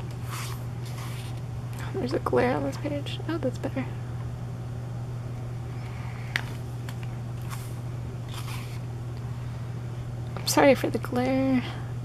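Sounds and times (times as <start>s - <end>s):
steady low hum: 0.0s - 12.0s
paper pages rustling: 0.2s - 1.4s, 6.4s - 8.8s.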